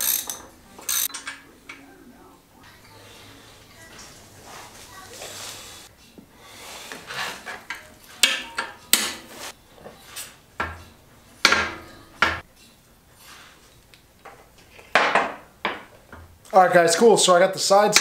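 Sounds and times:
metal tools clinking on metal: 0:00.0 - 0:01.8.

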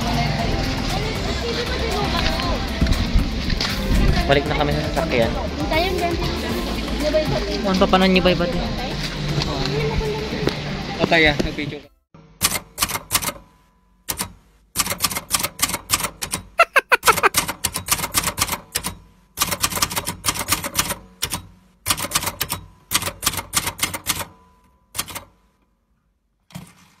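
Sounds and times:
typewriter key clacks: 0:14.1 - 0:16.5, 0:17.3 - 0:24.3, 0:25.0 - 0:25.3.

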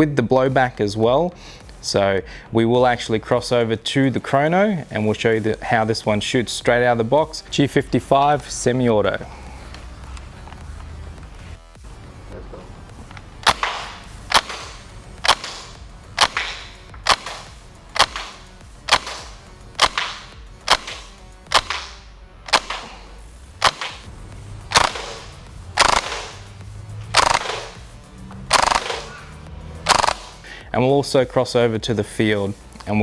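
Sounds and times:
gel blaster shots cracking: 0:13.4 - 0:22.9, 0:23.6 - 0:24.1, 0:24.7 - 0:26.5, 0:27.1 - 0:27.8, 0:28.5 - 0:30.4.

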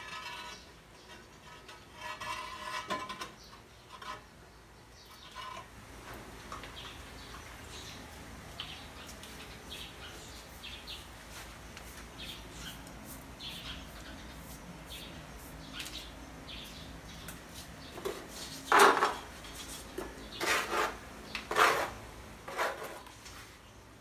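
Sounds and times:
metal scraping on gritty surface: 0:00.0 - 0:04.4, 0:05.1 - 0:06.2, 0:17.6 - 0:23.4.

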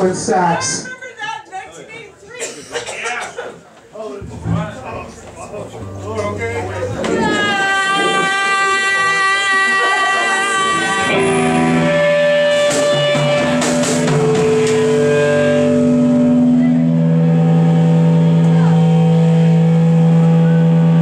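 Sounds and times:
bass guitar: 0:04.2 - 0:21.0
distorted electric guitar droning: 0:04.2 - 0:21.0
cymbal strikes: 0:11.0 - 0:20.9.

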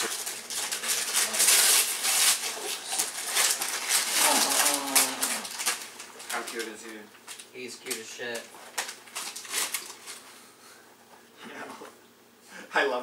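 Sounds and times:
wrapping paper tearing and crinkling: 0:00.0 - 0:10.4.

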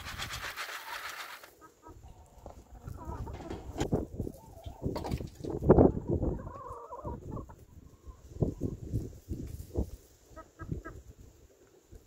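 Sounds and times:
hens clucking: 0:00.0 - 0:08.9, 0:10.2 - 0:11.8
wind buffeting the microphone: 0:02.8 - 0:10.0.

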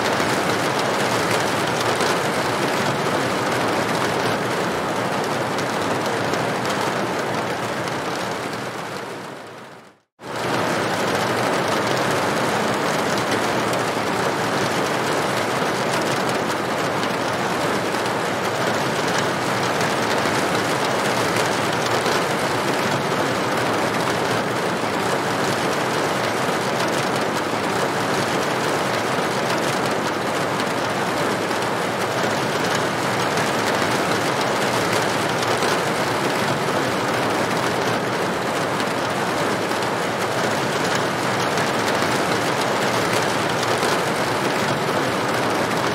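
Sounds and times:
rain on a tin roof: 0:00.0 - 0:45.9.

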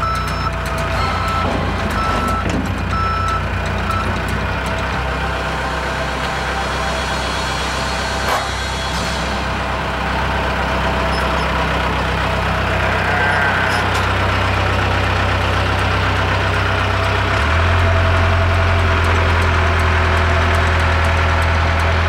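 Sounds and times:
diesel engine humming: 0:00.0 - 0:22.0.

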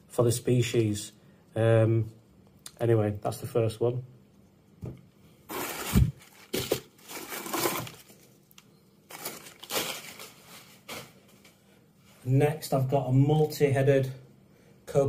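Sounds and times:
newspaper crinkling and rustling: 0:05.5 - 0:11.6.

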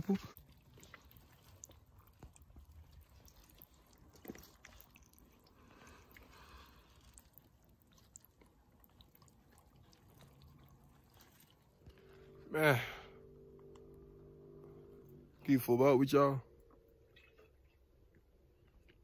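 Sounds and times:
faint stream trickling over rocks: 0:00.0 - 0:12.4.

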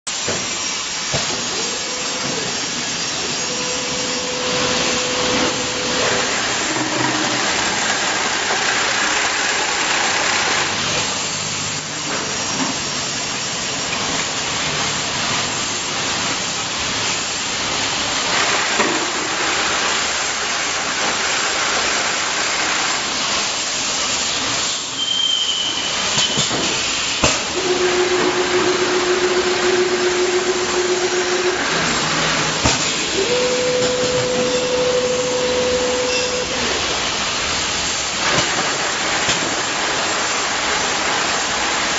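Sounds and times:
compressed air hissing: 0:00.1 - 0:12.4, 0:13.0 - 0:41.9
bottle filling line running: 0:00.1 - 0:41.9
high whistle: 0:03.2 - 0:06.2, 0:24.7 - 0:26.6, 0:27.6 - 0:31.9, 0:33.1 - 0:36.7.

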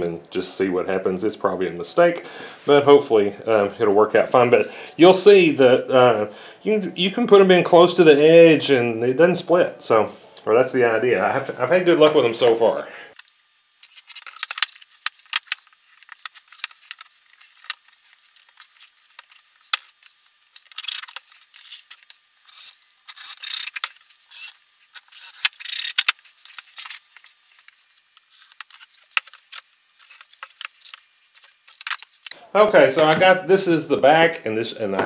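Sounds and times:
screws and boards rattling: 0:13.2 - 0:32.3.

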